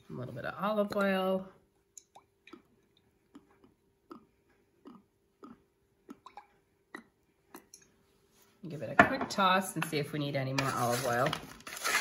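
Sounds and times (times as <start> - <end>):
faint steady hum: 0.0 - 10.4.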